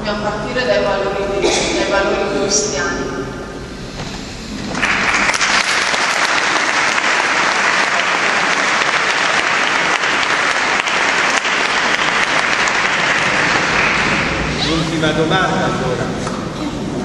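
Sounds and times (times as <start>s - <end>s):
audience applauding: 4.6s - 14.8s.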